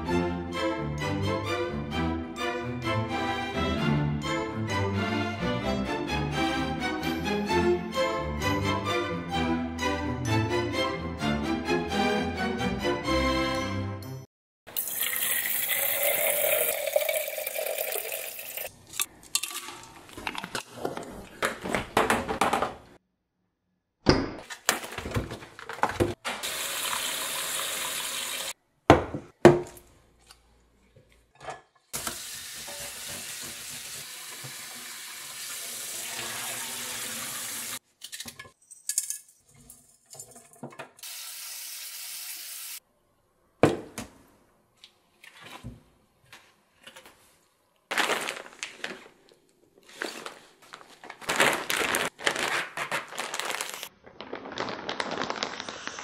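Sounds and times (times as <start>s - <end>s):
water poured into metal carafe: 14.7s - 20.4s.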